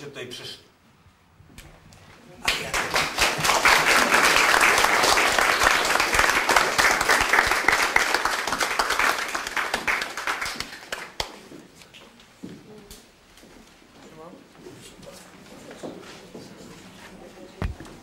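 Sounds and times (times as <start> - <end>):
audience applauding: 2.4 - 11.4.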